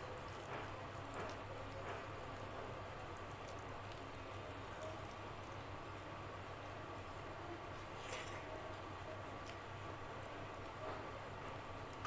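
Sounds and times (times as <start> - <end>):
fingers squelching wet food: 0.0 - 6.1.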